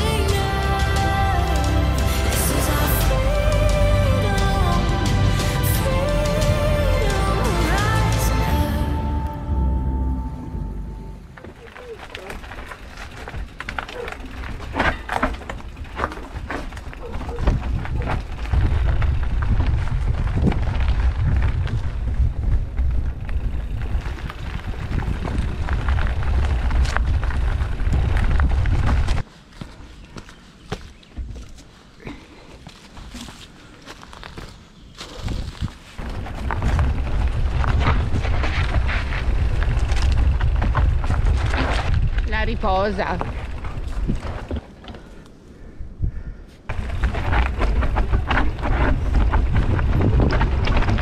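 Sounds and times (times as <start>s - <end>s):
bike clicks and rattles: 11.3s - 29.7s, 30.3s - 45.5s, 46.6s - 51.0s
wind rumble on microphone: 15.7s - 29.2s, 35.0s - 44.6s, 45.5s - 51.0s.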